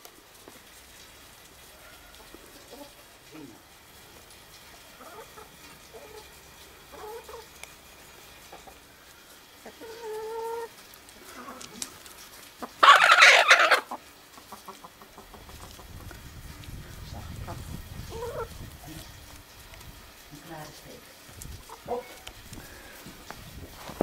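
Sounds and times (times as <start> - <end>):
chickens clucking: 1.7 - 3.5, 4.6 - 19.6, 21.6 - 23.3
chicken harsh call: 12.6 - 14.0.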